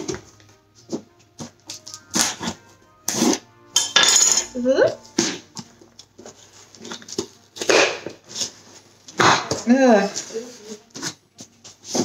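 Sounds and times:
packing tape ripping from cardboard: 1.6s - 3.4s.

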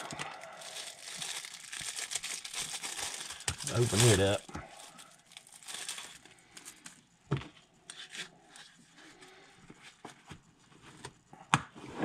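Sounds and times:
packaging rustling: 0.0s - 7.0s.

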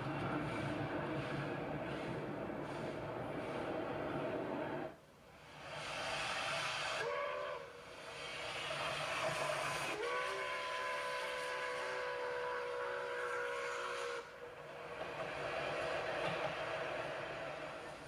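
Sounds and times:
moving train rush: 0.0s - 18.0s
steam locomotive whistle: 5.8s - 14.5s.

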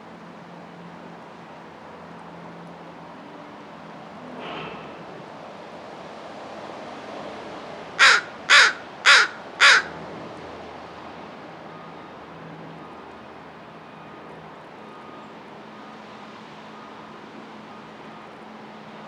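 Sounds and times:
crow cawing: 8.0s - 10.0s.

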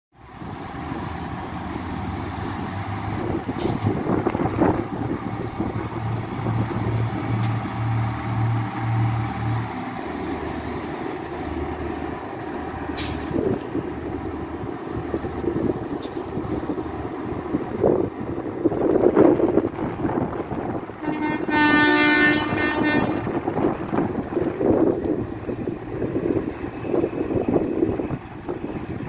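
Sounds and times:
diesel train engine idling: 0.2s - 29.0s
sharp hissing clicks: 7.3s - 7.9s, 12.9s - 13.8s.

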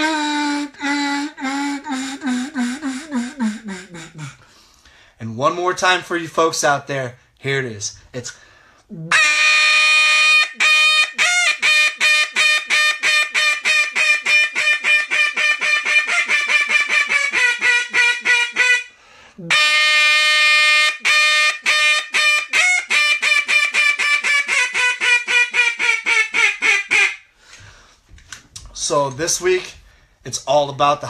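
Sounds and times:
duck call quacking: 0.0s - 4.4s, 9.1s - 27.2s.

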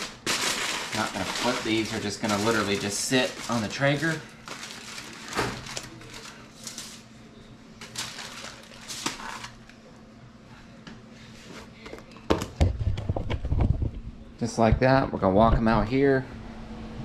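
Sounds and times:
aluminium foil crinkling: 0.0s - 7.2s, 7.8s - 9.8s.

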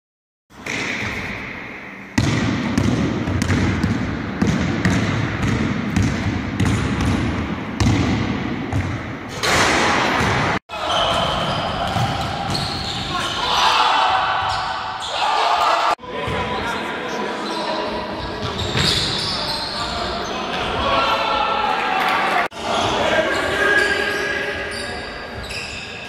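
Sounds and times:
basketball bouncing on hardwood floor: 2.2s - 9.0s.

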